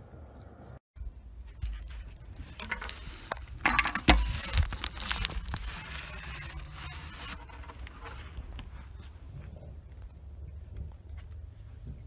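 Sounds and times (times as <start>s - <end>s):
scraping rustling and clicks: 1.5s - 9.2s.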